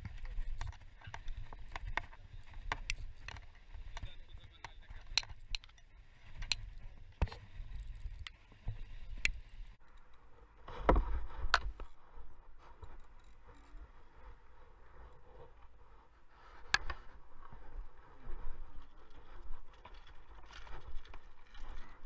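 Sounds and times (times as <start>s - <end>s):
reel and rod clicks: 0.0s - 10.2s.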